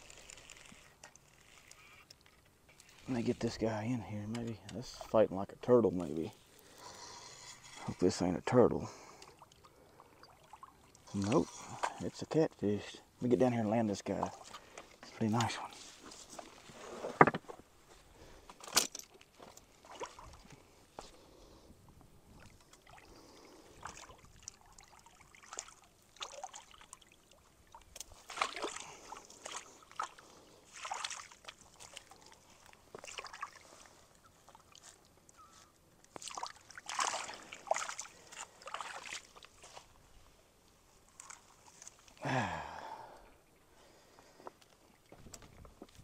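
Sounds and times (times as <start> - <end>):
water splashing at shoreline: 7.7 - 12.2, 19.0 - 20.7, 22.3 - 35.4, 36.0 - 40.0.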